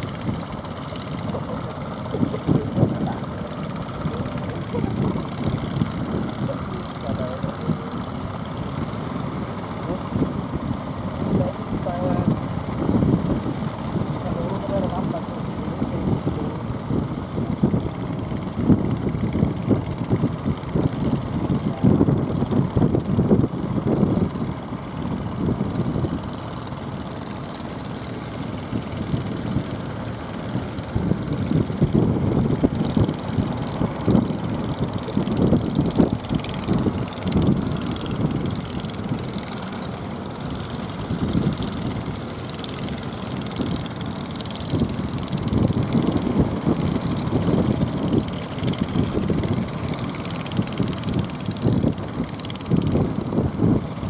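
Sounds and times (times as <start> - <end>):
boat engine running: 0.0 - 54.0
wind rumble on microphone: 0.0 - 54.0.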